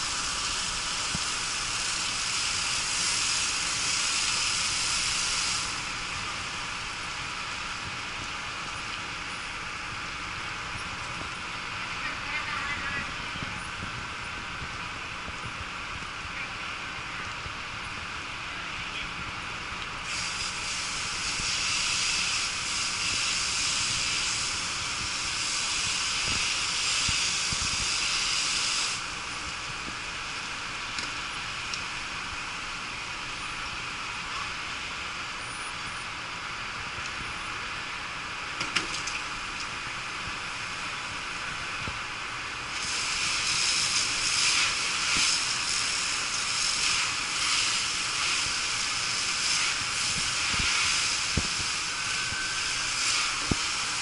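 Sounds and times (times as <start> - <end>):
hose spray hissing: 0.0 - 7.6, 20.0 - 32.4, 42.6 - 54.0.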